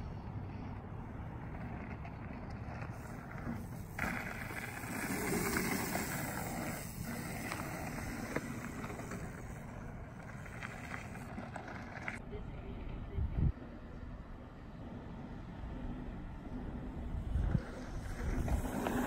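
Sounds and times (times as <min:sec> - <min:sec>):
bicycle tyres rolling over dirt: 0:00.6 - 0:12.2, 0:16.5 - 0:19.0.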